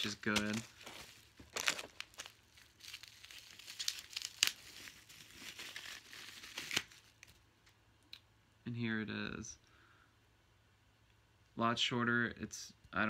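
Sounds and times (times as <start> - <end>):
plastic wrapping crinkling: 0.0 - 7.4.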